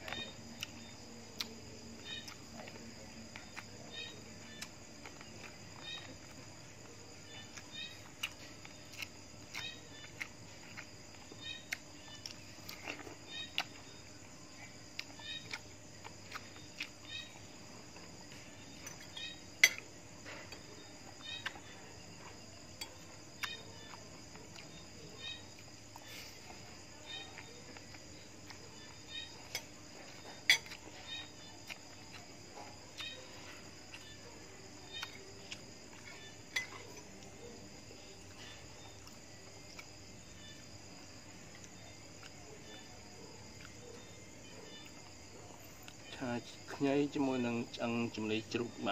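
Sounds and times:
crickets chirping: 0:00.0 - 0:48.9
person chewing: 0:07.5 - 0:14.0, 0:14.6 - 0:17.0, 0:31.6 - 0:34.2, 0:34.8 - 0:37.3.

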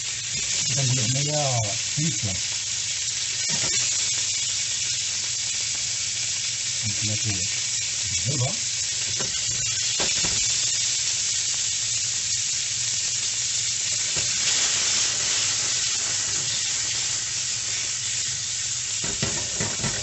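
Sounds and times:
fish sizzling in frying pan: 0:00.0 - 0:20.0
pan clattering: 0:19.0 - 0:20.0.

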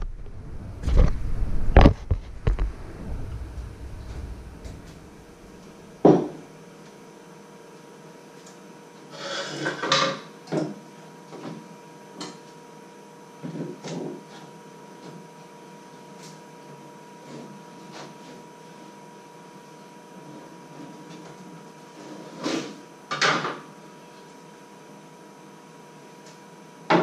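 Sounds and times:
faint steady hum: 0:00.0 - 0:07.0.

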